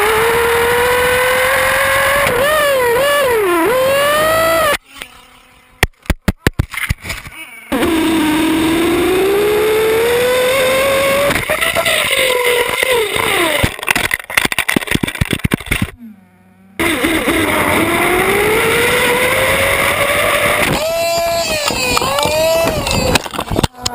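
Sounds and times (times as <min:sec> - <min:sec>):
small two-stroke engine revving: 0:00.0 - 0:04.9, 0:07.7 - 0:13.9, 0:15.7 - 0:23.9
clicks and knocks of bouncing car: 0:13.6 - 0:16.0.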